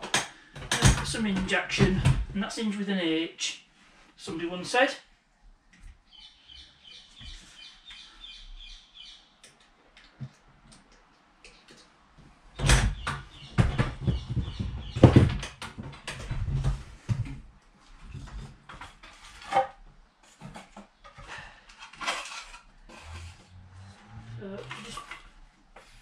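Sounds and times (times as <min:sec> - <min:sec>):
wooden door knocking and scraping: 0:12.6 - 0:17.4.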